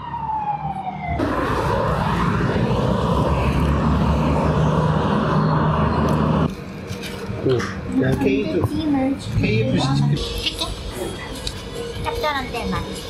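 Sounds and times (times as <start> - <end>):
siren falling wail: 0.0 - 6.5
vehicle noise with low hum: 1.2 - 13.0.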